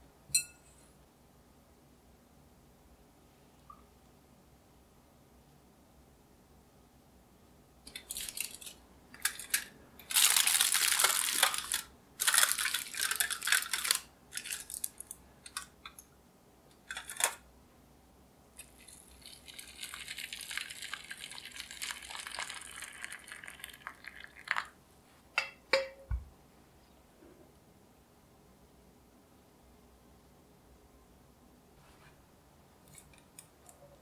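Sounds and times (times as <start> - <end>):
aluminium foil crinkling: 7.9 - 15.7, 16.8 - 17.4, 18.6 - 24.7
water pouring into dish: 18.6 - 24.8
glass cups clicking down: 25.4 - 26.1.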